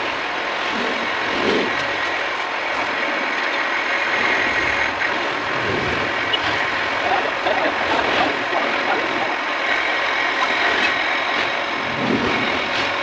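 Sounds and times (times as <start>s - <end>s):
metal lathe whirring: 0.0s - 13.0s.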